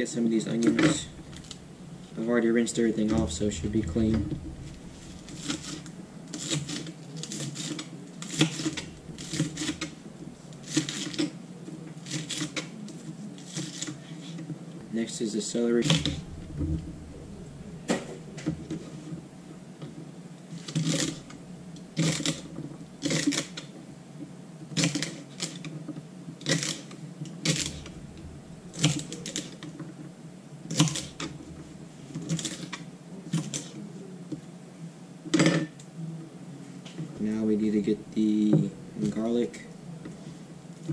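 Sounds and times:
steady low hum: 0.0s - 24.7s, 26.0s - 40.9s.

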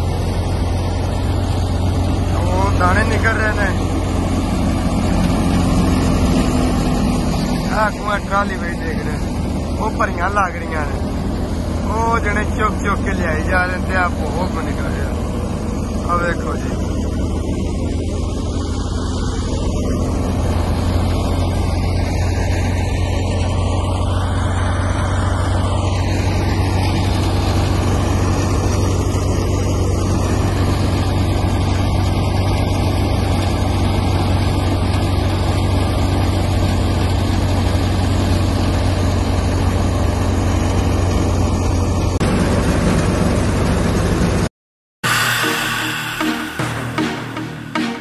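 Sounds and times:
rushing air and chaff: 45.0s - 48.0s
thresher machine droning: 45.0s - 48.0s.

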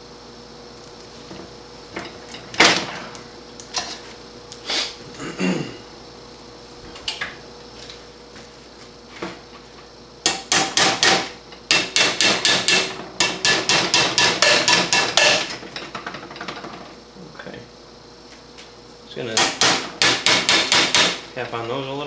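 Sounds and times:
hammer tapping on metal: 10.3s - 15.4s, 19.4s - 21.2s.

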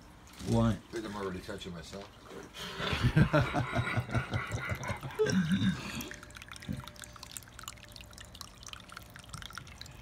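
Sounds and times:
fountain water trickling: 0.0s - 10.0s
person laughing: 2.8s - 6.0s.

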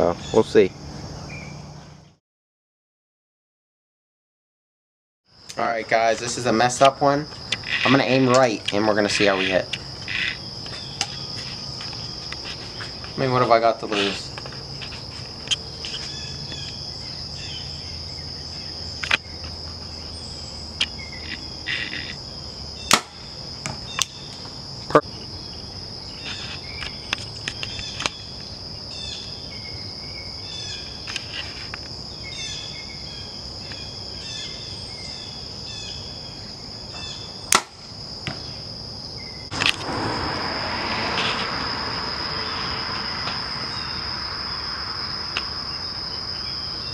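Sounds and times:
insects calling: 0.0s - 2.1s, 5.3s - 46.9s
bow release snap: 22.9s - 23.2s, 37.5s - 37.8s
rushing noise: 39.5s - 46.4s.

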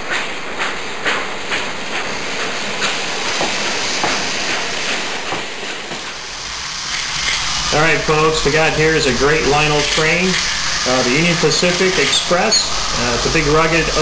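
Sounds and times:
toy train motor whirring: 6.0s - 14.0s
wheels clicking over track joints: 6.8s - 12.7s.

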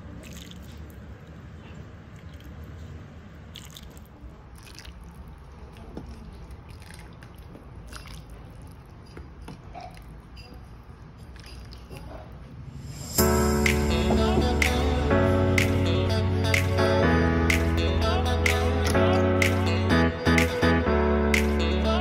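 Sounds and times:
steady low hum: 12.1s - 22.0s.

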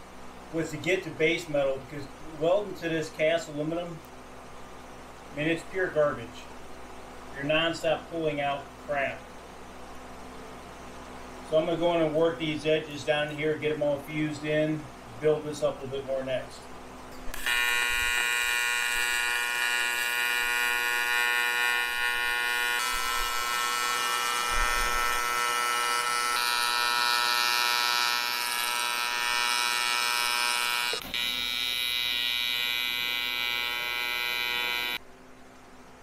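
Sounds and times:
welding arc buzzing: 17.0s - 35.0s.

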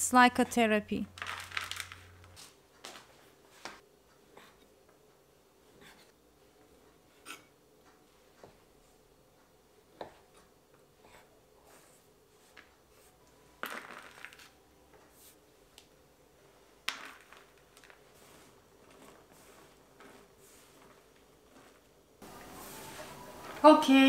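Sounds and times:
dough strips rustling: 1.1s - 3.8s, 16.4s - 24.0s.

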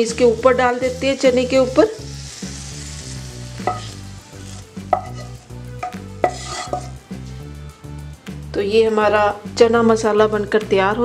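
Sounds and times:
light sizzle: 0.0s - 7.6s
spatula scraping a pan: 0.7s - 7.4s.

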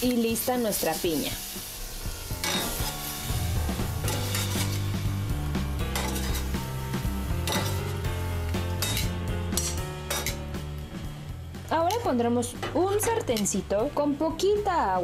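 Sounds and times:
background music with bass: 1.8s - 15.0s
metal tongs clinking on a pan: 2.4s - 2.9s, 5.9s - 6.5s, 7.4s - 7.9s, 8.8s - 10.4s, 11.8s - 13.6s.

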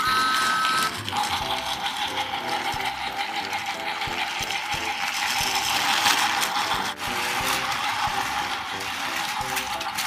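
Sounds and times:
clicks from wheels and track: 0.0s - 10.0s
toy train motor whirring: 0.0s - 10.0s.

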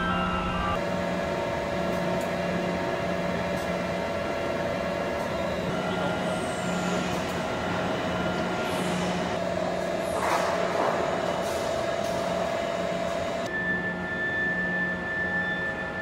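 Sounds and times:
high whine falling in pitch: 0.0s - 0.9s
industrial machinery hum: 0.0s - 16.0s.

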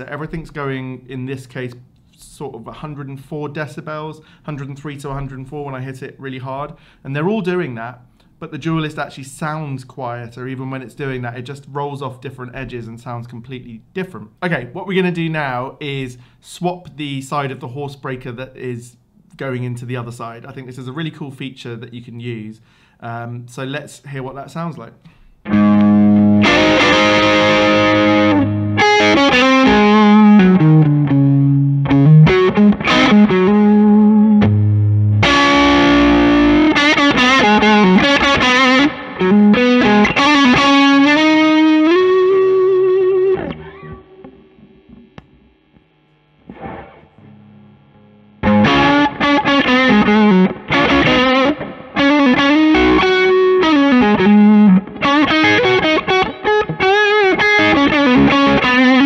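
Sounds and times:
overdriven electric guitar: 25.1s - 59.0s.

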